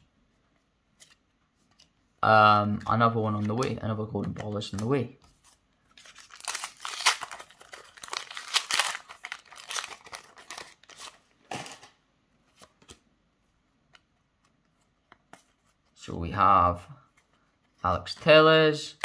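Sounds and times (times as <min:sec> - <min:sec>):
wrapper crinkling and ripping: 0:05.9 - 0:11.9.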